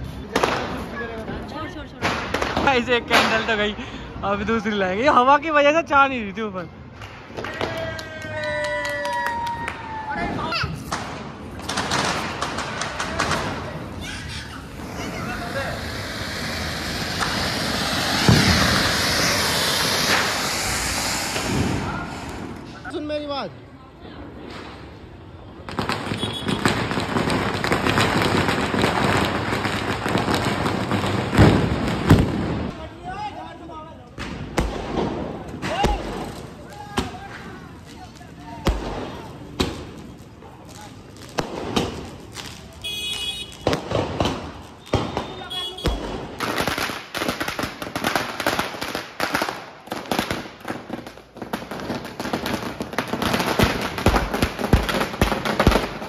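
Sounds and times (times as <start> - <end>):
firecrackers popping: 0.0 - 23.4, 24.3 - 56.0
heavier bangs: 17.1 - 22.7.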